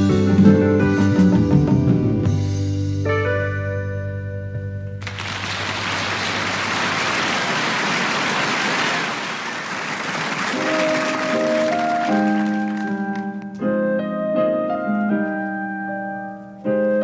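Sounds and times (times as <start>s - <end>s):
audience applauding: 5.0s - 13.4s
keyboard notes: 10.5s - 17.0s.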